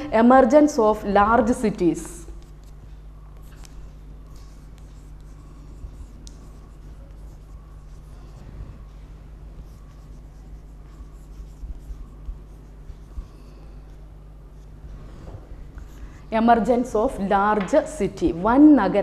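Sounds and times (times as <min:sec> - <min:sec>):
steady low hum: 0:00.0 - 0:19.0
chalk taps: 0:02.1 - 0:08.3, 0:09.6 - 0:13.4
chalk scratching on blackboard: 0:02.2 - 0:02.8, 0:03.4 - 0:08.9, 0:09.6 - 0:13.9.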